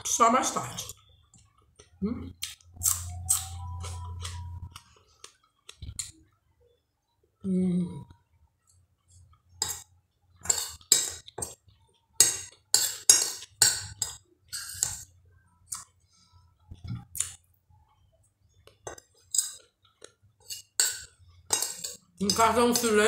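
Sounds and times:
metal spoon scraping glass plate: 10.4s - 11.5s, 12.2s - 15.0s, 20.4s - 23.0s.

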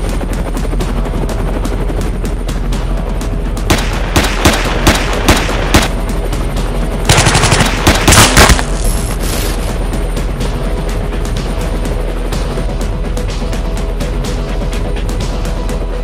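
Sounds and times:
background music: 0.0s - 16.0s
single gunshots: 7.1s - 8.8s
machine-gun bursts: 7.1s - 8.9s.

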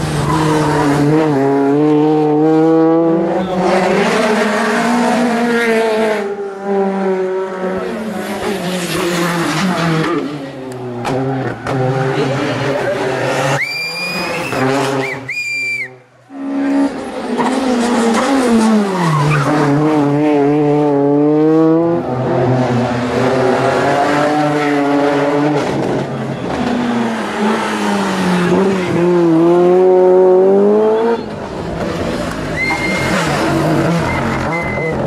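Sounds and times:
rally car engines revving: 0.0s - 35.0s
tyre squeal: 13.5s - 16.0s, 32.5s - 35.0s.

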